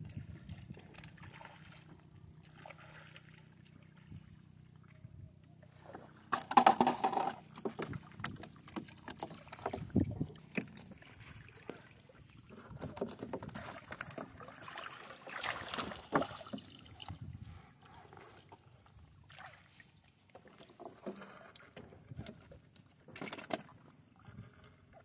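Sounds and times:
quiet lapping water: 0.0 - 25.0
fish knocking in wooden canoe: 6.3 - 11.0.

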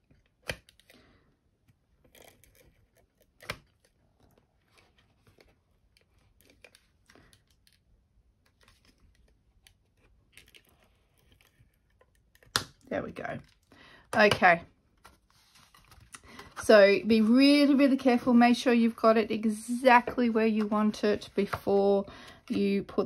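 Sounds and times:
cardstock rustling and creasing: 0.0 - 18.3.

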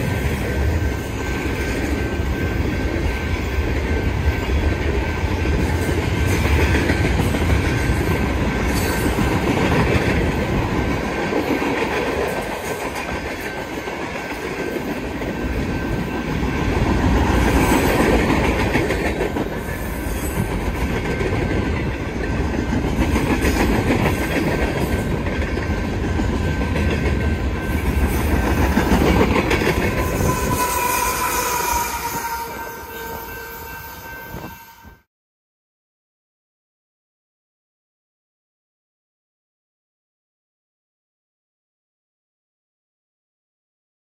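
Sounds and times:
freight train rumbling past: 0.0 - 35.1
steel wheels clattering on rails: 4.6 - 32.1.

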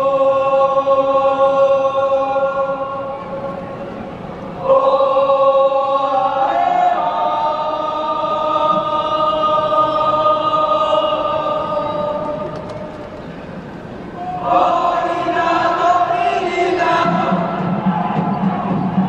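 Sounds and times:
choir singing held chords: 0.0 - 19.0.

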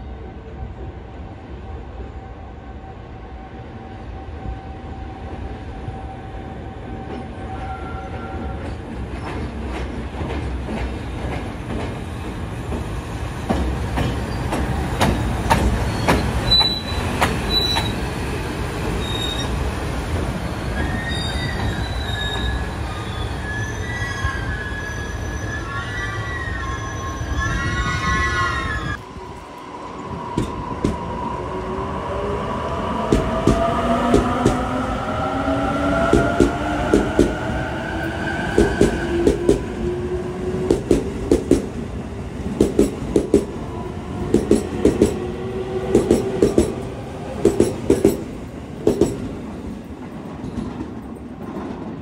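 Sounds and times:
wheels squealing: 15.8 - 18.0.

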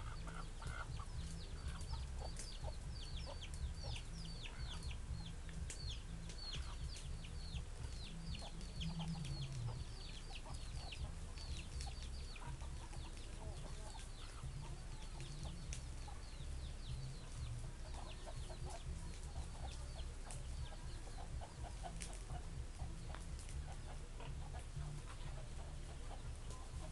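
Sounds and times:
chickens clucking: 0.0 - 26.9
chicks peeping: 0.0 - 26.9
steady low rumble: 0.0 - 26.9.

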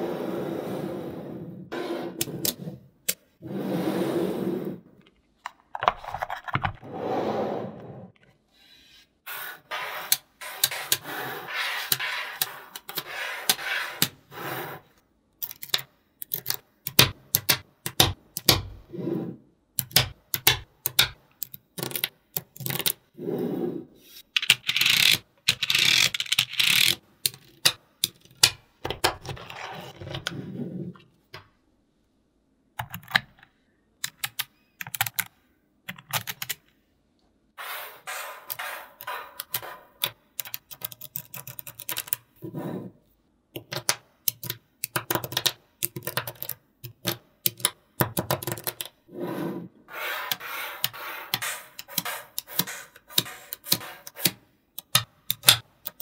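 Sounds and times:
magnetic balls clicking together: 15.4 - 18.7, 19.8 - 23.0, 43.6 - 49.0.

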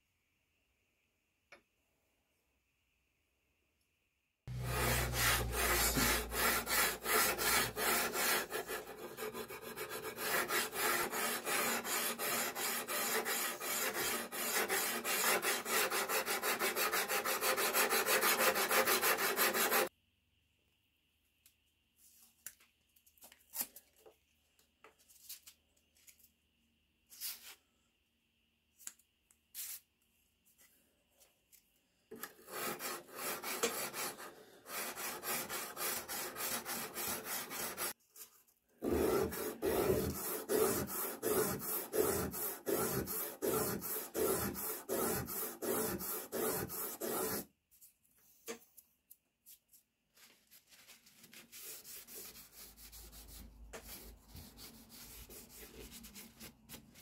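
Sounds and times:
cloth wiping blade: 4.5 - 19.9, 38.8 - 47.4
sandpaper scraping metal blade: 4.5 - 19.9, 32.4 - 38.0, 38.8 - 47.5.

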